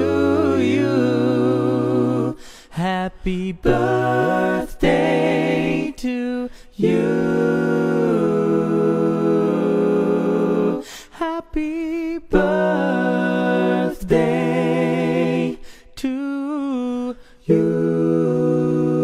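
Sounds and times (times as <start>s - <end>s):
unaccompanied voices singing: 0.0s - 19.0s.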